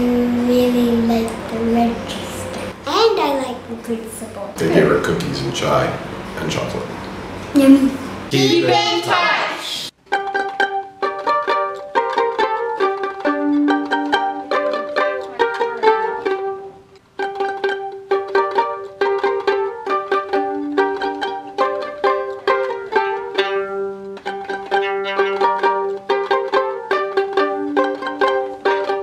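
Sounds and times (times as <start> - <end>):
plucked-string background music: 10.0 - 29.0.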